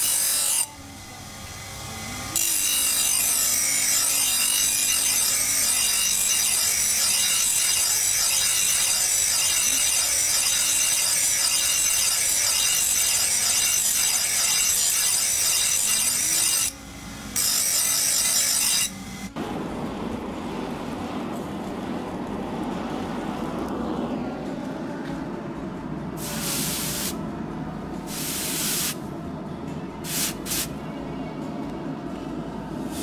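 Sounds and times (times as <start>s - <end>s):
knife grinding on abrasive wheel: 0.0s - 19.3s
low motor hum: 18.9s - 26.5s, 27.2s - 28.1s.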